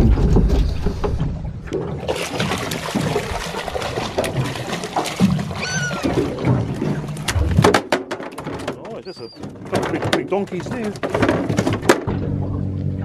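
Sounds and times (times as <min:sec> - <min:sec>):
fish thrashing and splashing: 0:00.0 - 0:12.4.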